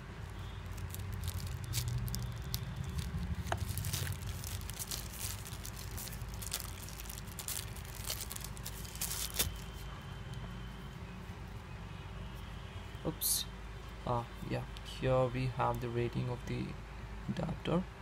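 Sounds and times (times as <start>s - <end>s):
plastic bag crinkling: 0.2s - 9.8s.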